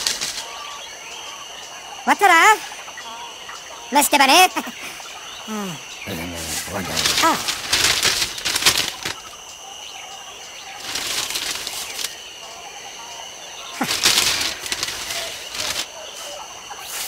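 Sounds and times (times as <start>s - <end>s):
newspaper rustling: 6.1s - 9.4s, 10.8s - 12.2s, 13.8s - 16.4s.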